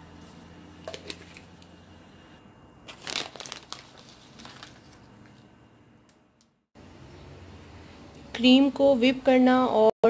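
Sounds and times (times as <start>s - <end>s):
sprinkles crinkling and rustling: 2.9s - 5.4s.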